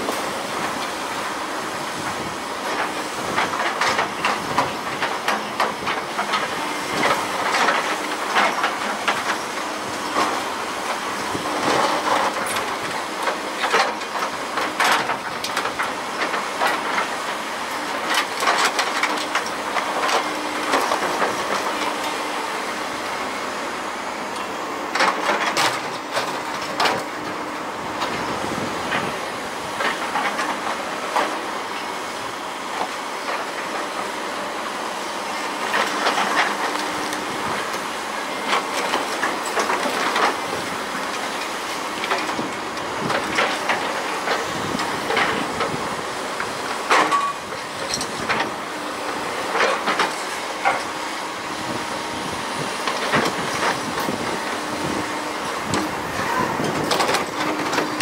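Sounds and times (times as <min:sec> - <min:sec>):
excavator diesel engine running: 0:00.0 - 0:58.0
metal and debris crunching and clanking: 0:46.8 - 0:51.0.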